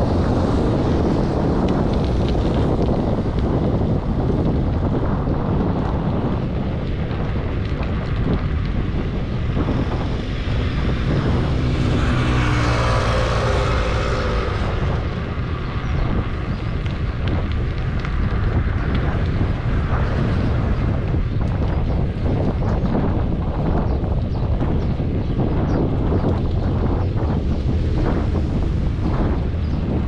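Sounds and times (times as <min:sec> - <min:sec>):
wind rumble on microphone: 0:00.0 - 0:30.0
passing vehicle engine: 0:09.2 - 0:17.2.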